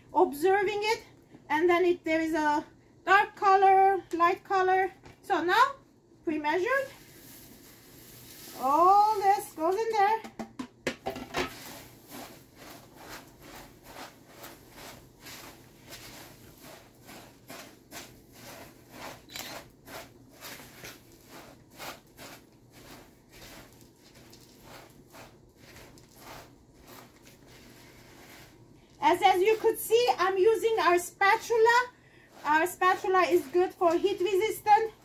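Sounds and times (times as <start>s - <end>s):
spatula stirring cereal: 6.6s - 10.1s, 11.5s - 35.0s.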